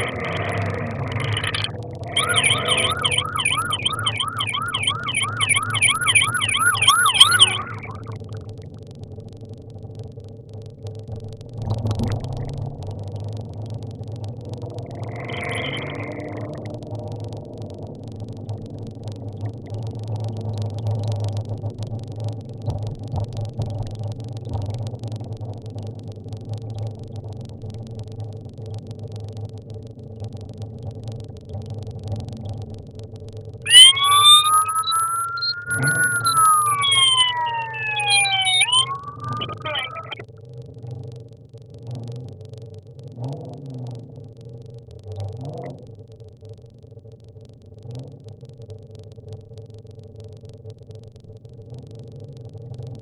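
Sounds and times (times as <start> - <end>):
police siren yelping: 0.0 - 8.2, 14.9 - 16.8, 33.7 - 40.2
car engine and road drone: 0.0 - 8.3, 10.5 - 24.0, 33.7 - 40.2.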